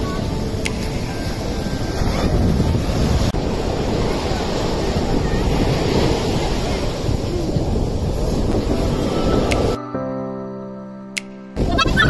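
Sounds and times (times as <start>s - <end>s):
surf washing on beach: 0.0s - 9.8s
wind buffeting microphone: 0.0s - 9.8s, 11.6s - 12.0s.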